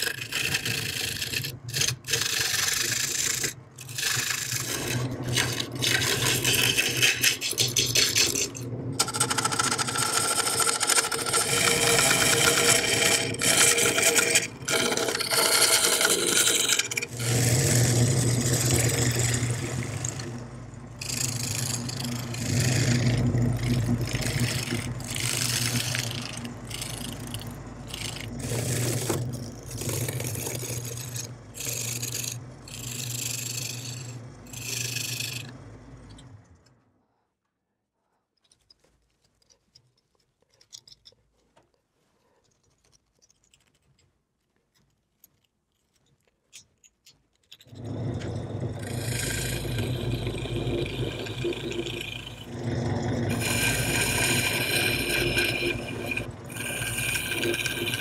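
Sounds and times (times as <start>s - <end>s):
turning tool cutting wood: 0.0s - 36.4s, 47.7s - 58.0s
lathe hum: 0.0s - 36.6s, 47.7s - 58.0s.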